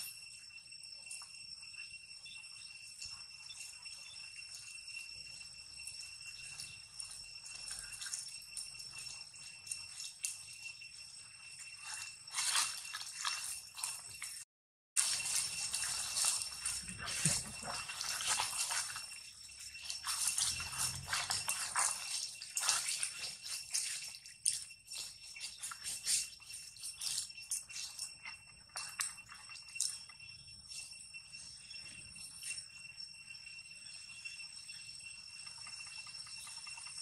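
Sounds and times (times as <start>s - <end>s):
high-pitched ringing: 0.0s - 37.0s
rustling in grass and leaves: 6.3s - 30.0s.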